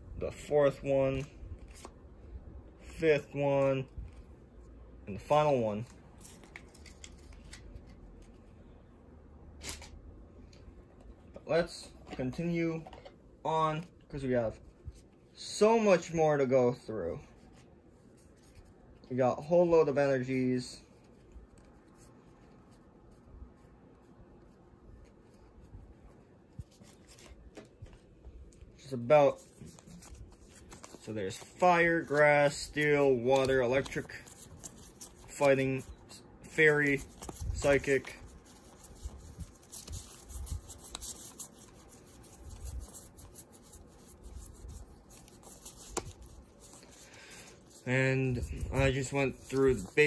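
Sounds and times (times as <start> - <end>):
trading cards rustling: 0.4 - 2.0, 5.1 - 8.6, 24.5 - 50.0.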